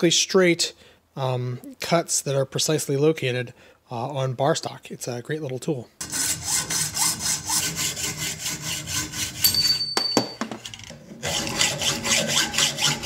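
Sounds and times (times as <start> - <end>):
hacksaw cutting metal: 6.0 - 9.6, 11.2 - 13.0.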